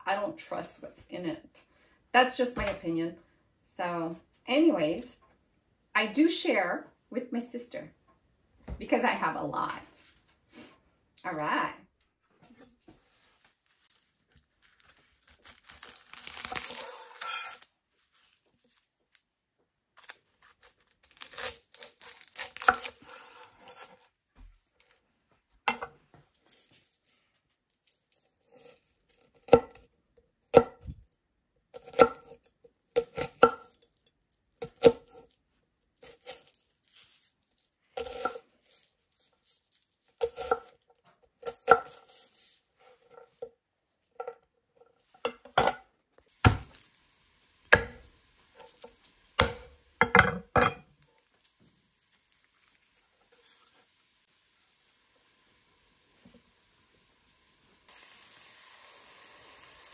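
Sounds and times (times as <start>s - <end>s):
knife slicing onion: 14.6s - 17.7s, 20.0s - 24.2s, 28.3s - 29.8s, 31.7s - 33.8s, 34.6s - 35.3s, 36.0s - 37.4s, 38.0s - 43.4s, 46.4s - 46.9s, 47.7s - 50.8s.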